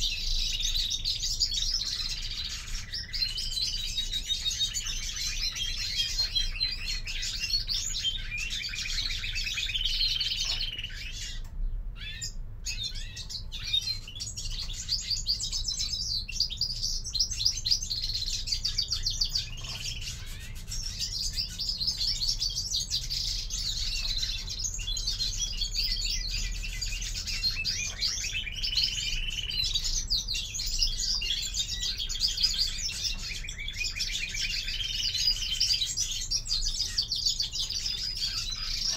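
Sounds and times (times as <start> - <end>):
finches twittering and singing: 0.0 - 38.9.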